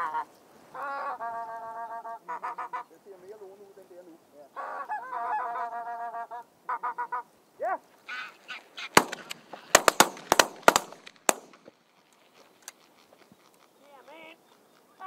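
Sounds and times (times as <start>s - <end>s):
geese honking overhead: 0.0s - 3.0s, 4.5s - 7.3s
shotgun shots: 8.9s - 11.7s.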